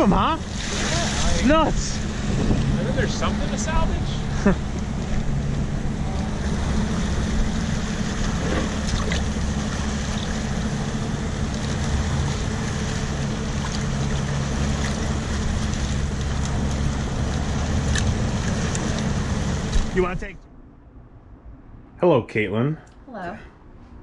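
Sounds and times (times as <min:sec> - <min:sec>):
water rushing: 0:00.0 - 0:20.4
boat engine droning: 0:00.0 - 0:21.8
wind rushing: 0:01.0 - 0:04.3.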